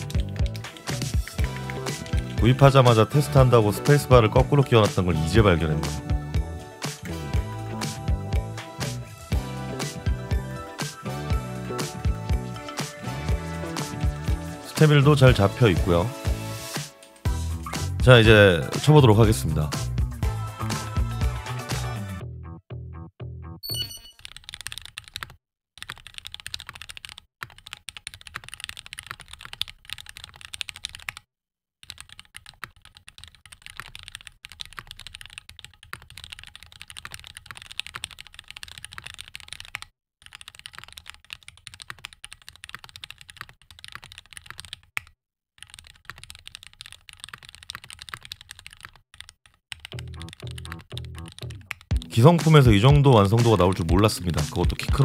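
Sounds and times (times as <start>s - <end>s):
mechanical keyboard typing: 0.0s - 3.0s, 23.8s - 31.2s, 31.8s - 52.1s.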